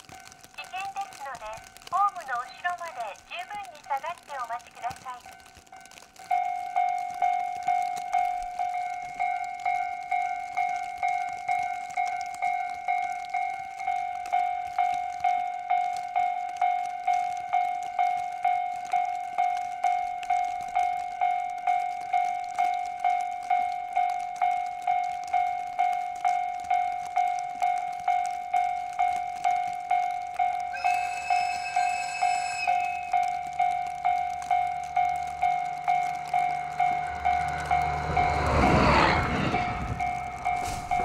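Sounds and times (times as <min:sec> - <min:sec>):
level crossing bell dinging: 0:30.8 - 0:33.1.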